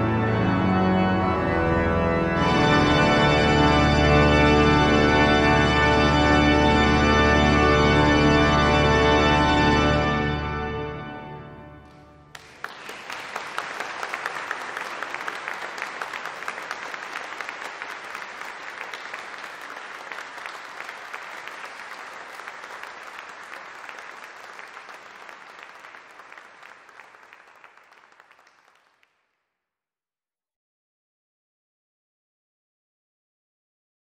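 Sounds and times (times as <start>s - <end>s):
audience applauding: 11.8s - 29.2s.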